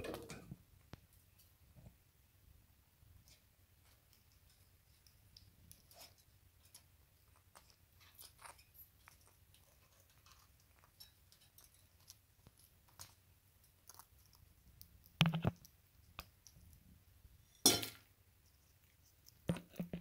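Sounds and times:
parakeet nibbling cage wire: 3.3s - 16.7s.

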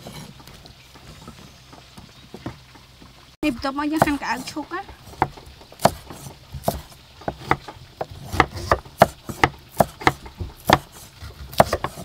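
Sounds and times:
cleaver chopping on wooden board: 4.0s - 12.0s.

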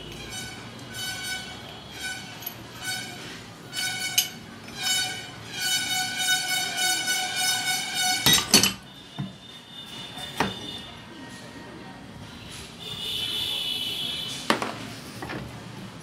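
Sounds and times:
metal on metal squeal: 0.1s - 8.8s
sharp metal clanks: 8.2s - 8.8s.

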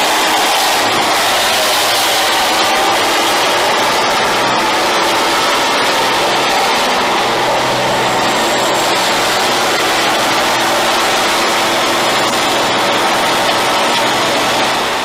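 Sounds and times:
diesel engine running steadily: 0.0s - 15.0s
spinning tyres hissing: 0.0s - 15.0s.

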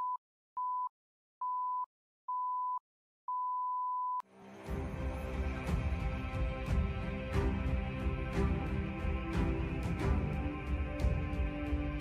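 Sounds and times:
intro music: 4.3s - 12.0s.

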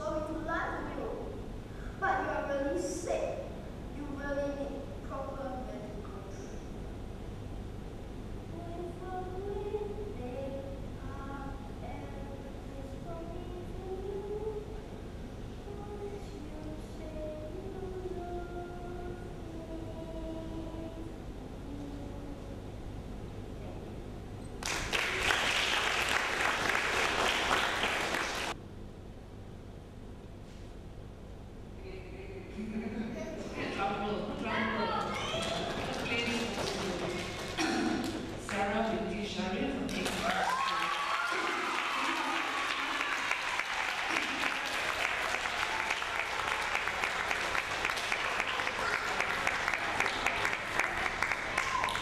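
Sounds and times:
audience applauding: 24.6s - 28.6s, 34.9s - 37.7s, 39.9s - 52.0s.

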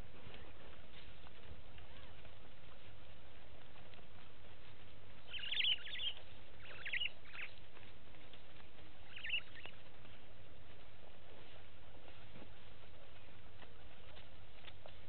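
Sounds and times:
bird chirping: 5.2s - 7.7s, 8.3s - 9.8s.

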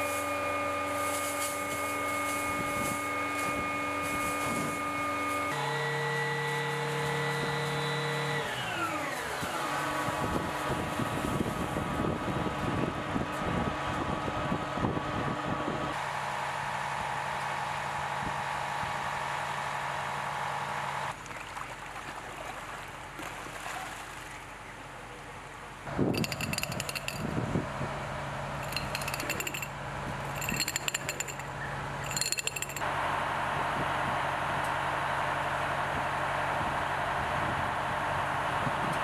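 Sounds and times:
pump engine running: 0.0s - 12.2s.

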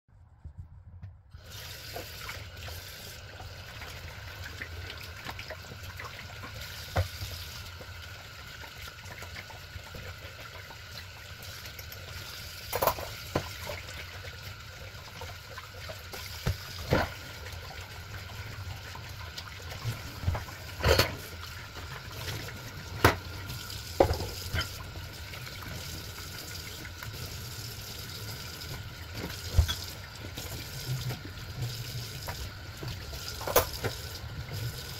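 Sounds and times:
tap running into sink: 6.9s - 7.4s, 22.9s - 24.8s, 28.7s - 34.2s
dishes clinking: 20.8s - 21.3s.

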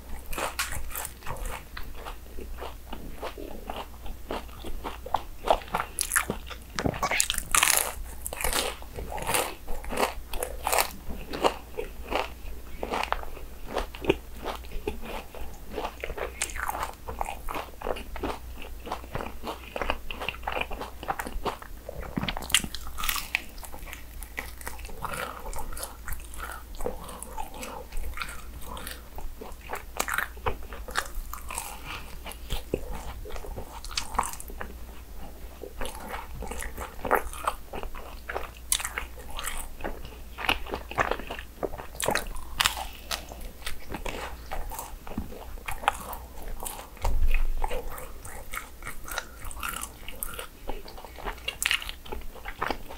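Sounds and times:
chewing: 0.0s - 52.9s
crisp crunching bites: 5.9s - 12.3s.

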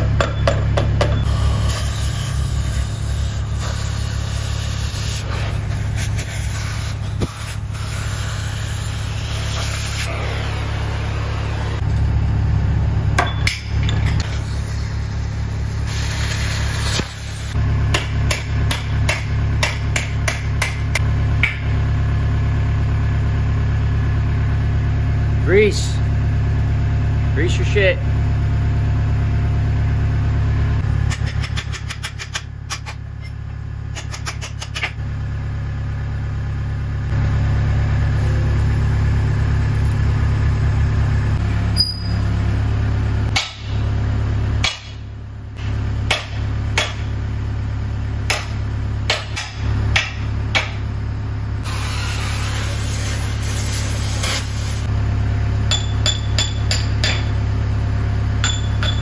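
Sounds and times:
engine idling: 0.0s - 59.0s
hammer striking steel: 13.2s - 14.3s, 17.9s - 21.7s, 43.3s - 43.8s, 44.6s - 45.0s, 46.1s - 47.1s, 48.3s - 50.8s, 55.7s - 57.4s, 58.4s - 59.0s.

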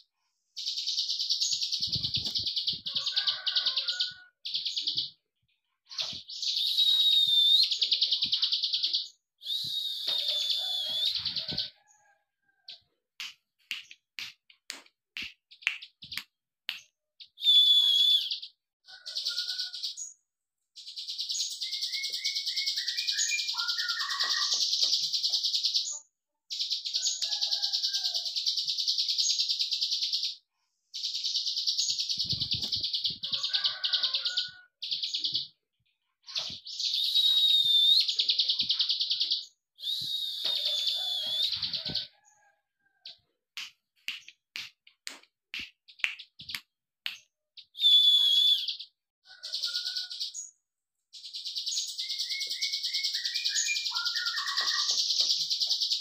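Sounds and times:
fast high clicking bird trills: 21.0s - 25.8s, 51.3s - 56.0s.

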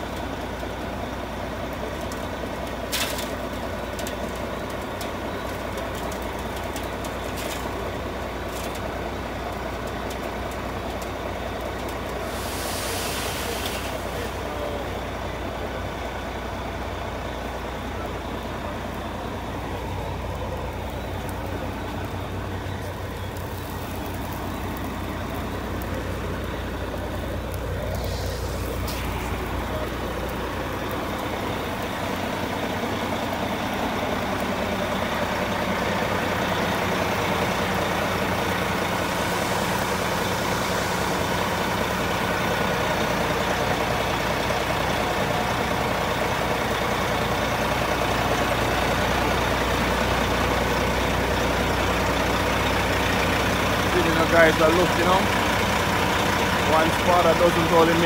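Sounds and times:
diesel engine running: 0.0s - 58.0s
burst of hiss: 12.2s - 14.6s, 27.8s - 29.8s, 38.6s - 42.1s.

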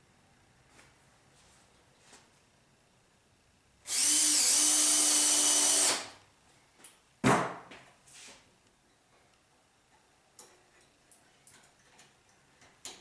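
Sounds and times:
electric drill running: 3.9s - 6.2s.

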